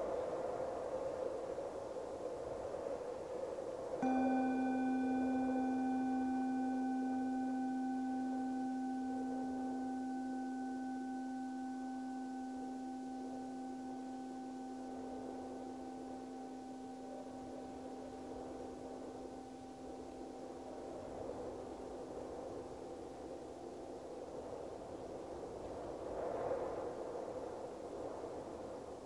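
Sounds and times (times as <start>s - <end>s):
singing bowl ringing: 4.0s - 24.1s.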